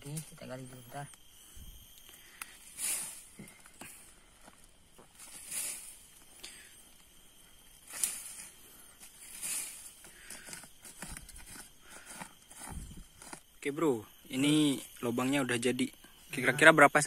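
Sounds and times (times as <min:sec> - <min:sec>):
hands scooping soil: 0:05.0 - 0:06.2, 0:07.8 - 0:13.4.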